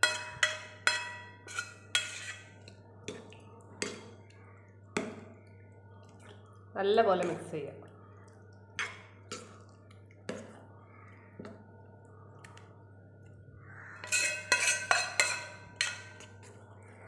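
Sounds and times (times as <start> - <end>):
spoon clinking against bowl: 0.0 - 2.5, 14.0 - 16.4.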